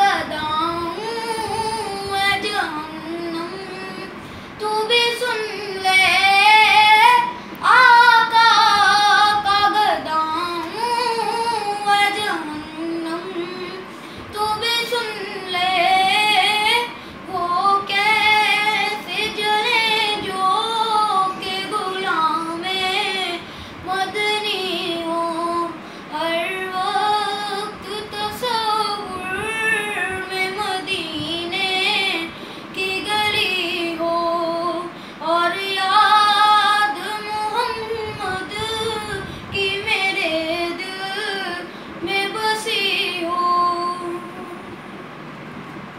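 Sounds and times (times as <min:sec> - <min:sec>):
boy singing unaccompanied: 0:00.0 - 0:44.6.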